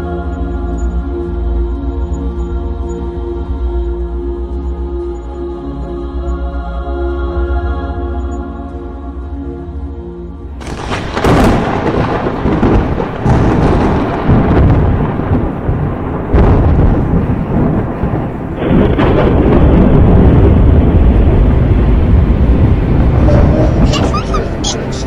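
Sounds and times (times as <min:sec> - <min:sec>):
dark background music: 0:00.0 - 0:25.0
wordless choir holding chords: 0:00.0 - 0:25.0
thunder rumbling and clapping: 0:10.6 - 0:25.0.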